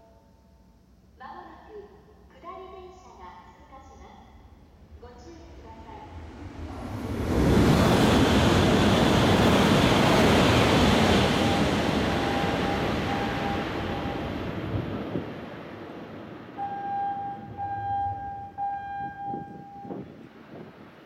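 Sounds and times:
train running past: 4.3 - 21.0
electronic warning tone pulses: 11.3 - 14.3, 16.6 - 20.0.

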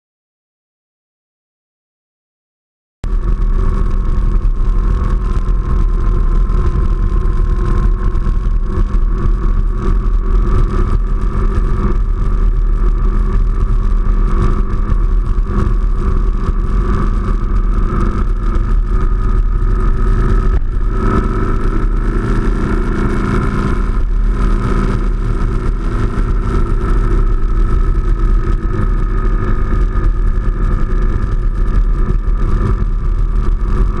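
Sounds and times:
heavy low rumble: 3.0 - 34.0
motorcycle engine cruising: 3.1 - 34.0.

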